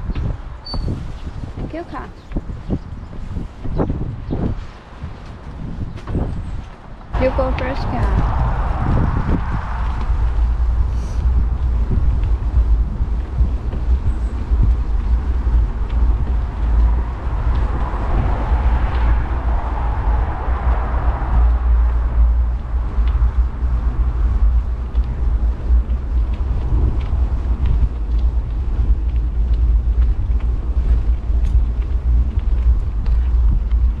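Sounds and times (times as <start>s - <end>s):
bicycle rolling noise: 0.0s - 34.0s
wind buffeting microphone: 0.0s - 34.0s
small ticks from path: 9.8s - 34.0s.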